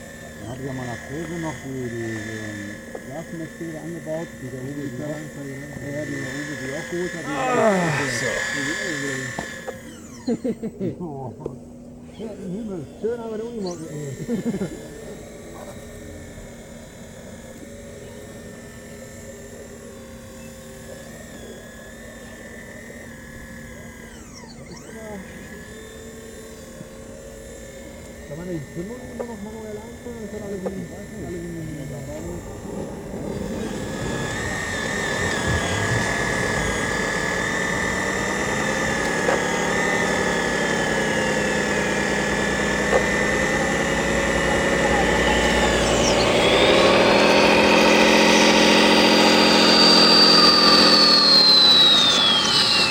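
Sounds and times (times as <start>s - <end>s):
hydraulic pump whining: 0.0s - 52.9s
low even hum: 0.0s - 52.9s.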